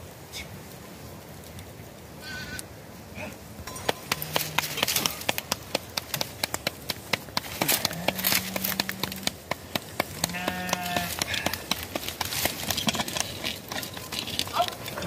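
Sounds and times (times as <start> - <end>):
dough slapped between palms: 4.1 - 12.3
livestock bleating: 10.2 - 11.2.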